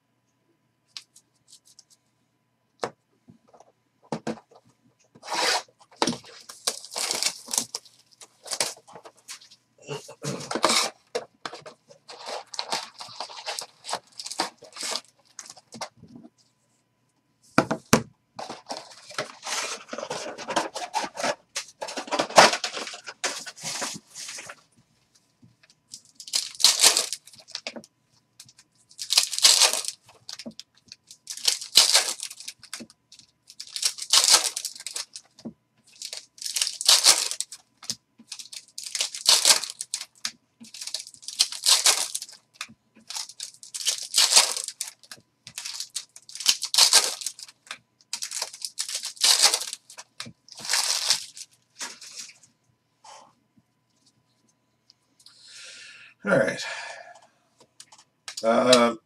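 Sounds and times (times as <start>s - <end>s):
foil packs ripping open: 5.2s - 8.9s, 9.9s - 11.0s, 12.1s - 15.5s, 26.2s - 27.7s, 28.9s - 32.9s, 33.5s - 35.2s, 35.9s - 52.3s
foil wrappers crinkling: 5.2s - 15.9s, 18.4s - 24.6s, 25.9s - 27.8s, 28.4s - 52.4s.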